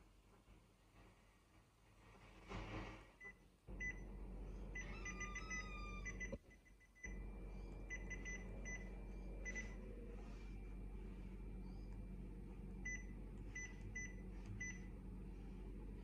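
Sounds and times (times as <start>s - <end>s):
copier machinery humming: 3.7s - 6.4s, 7.0s - 16.0s
control panel beeping: 4.8s - 9.9s, 12.8s - 14.9s.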